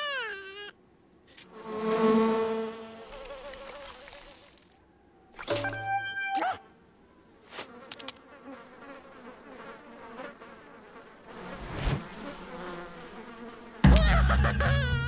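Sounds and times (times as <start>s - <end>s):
cartoon fly buzzing: 0.0s - 0.8s, 1.4s - 4.7s, 7.5s - 15.0s.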